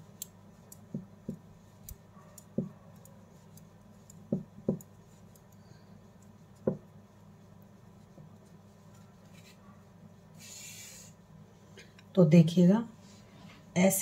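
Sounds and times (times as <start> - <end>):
metal knitting needles clicking: 0.0 - 6.7.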